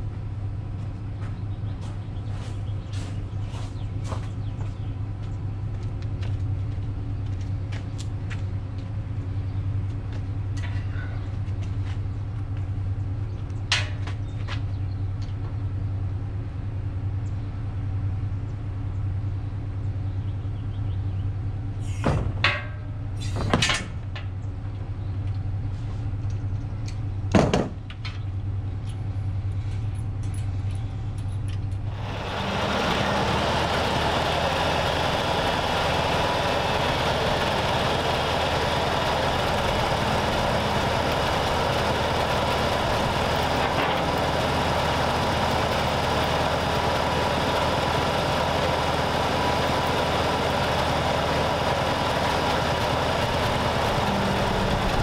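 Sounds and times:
low mechanical hum: 0.0s - 55.0s
sharp knocks and clunks: 22.0s - 24.0s, 27.3s - 28.0s.

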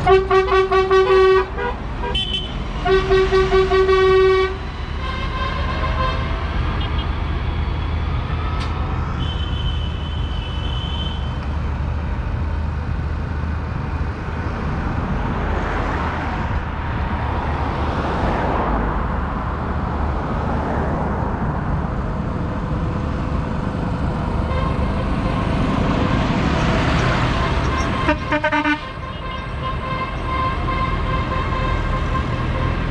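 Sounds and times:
tractor engines running: 21.2s - 32.9s.

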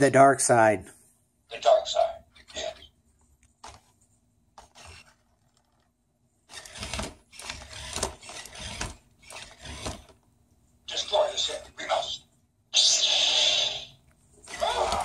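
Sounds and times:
toy mechanical noise: 2.0s - 2.9s, 4.6s - 5.9s, 6.5s - 10.2s, 12.8s - 15.0s.

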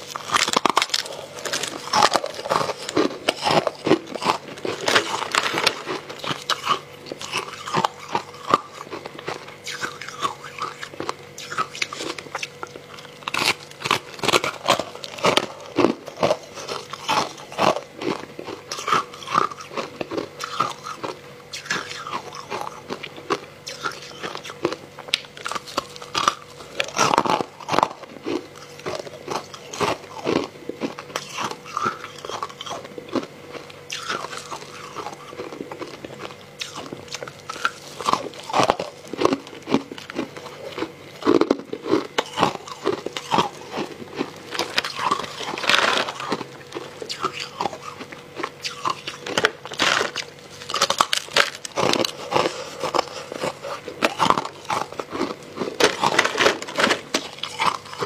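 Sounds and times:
chewing crunchy ice: 0.0s - 58.0s.

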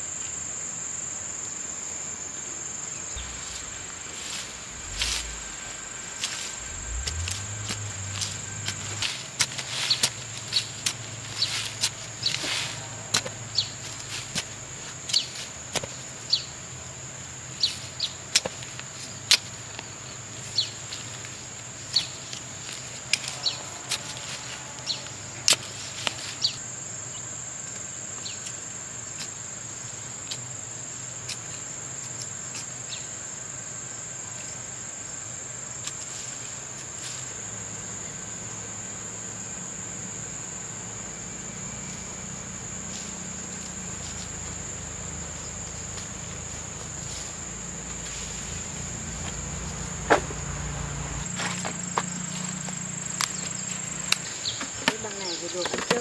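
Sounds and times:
high-pitched insect drone: 0.0s - 15.6s, 20.0s - 28.8s, 36.1s - 56.0s.

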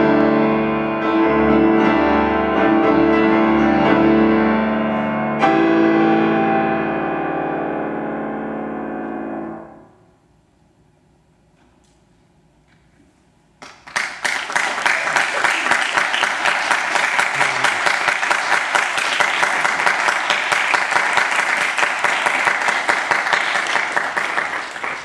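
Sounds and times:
music: 0.0s - 10.1s
audience applauding: 13.6s - 25.0s.

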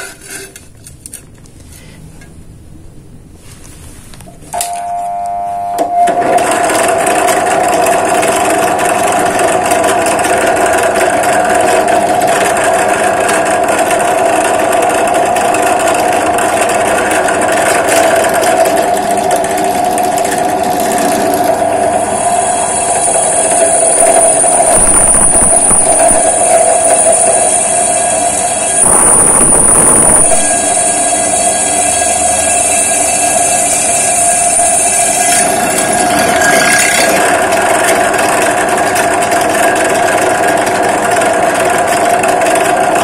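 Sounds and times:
drill press motor running: 6.2s - 43.0s
drill boring into steel tube: 13.0s - 38.3s
high steady squeal: 17.3s - 37.4s.

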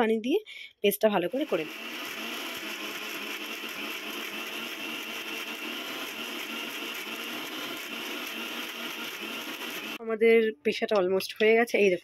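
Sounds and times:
mixer grinder running: 1.3s - 10.0s.

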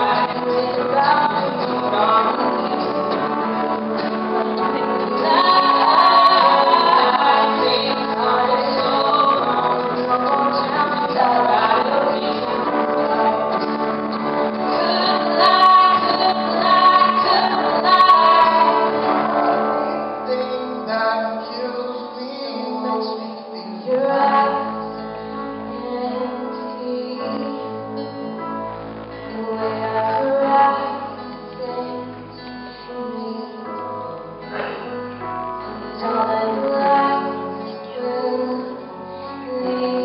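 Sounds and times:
woman singing: 0.0s - 27.8s, 29.2s - 34.2s, 35.8s - 40.0s
acoustic guitar: 0.0s - 40.0s
grand piano: 0.0s - 40.0s.

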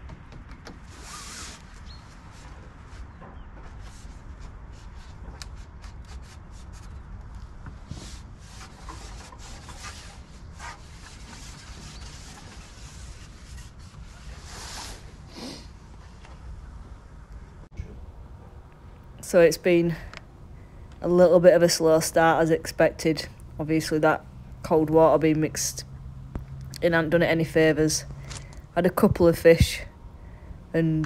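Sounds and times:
rustling: 0.7s - 16.5s.

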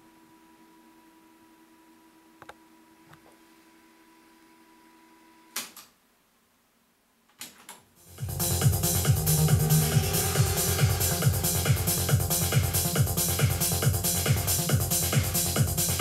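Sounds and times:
music from tape: 8.0s - 16.0s.

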